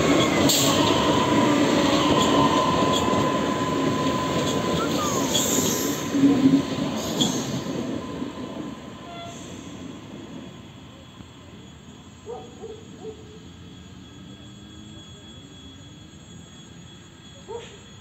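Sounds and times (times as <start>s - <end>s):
train rolling on rails: 0.0s - 18.0s.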